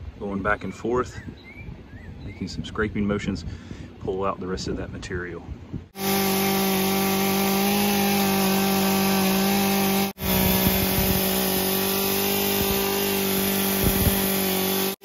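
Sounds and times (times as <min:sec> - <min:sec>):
chainsaw running: 0:06.0 - 0:15.0
chainsaw scraping wood: 0:06.0 - 0:15.0.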